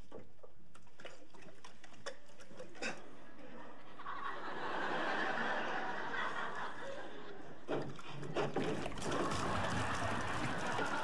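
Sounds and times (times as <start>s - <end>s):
audience laughing: 3.4s - 7.7s, 9.0s - 11.0s.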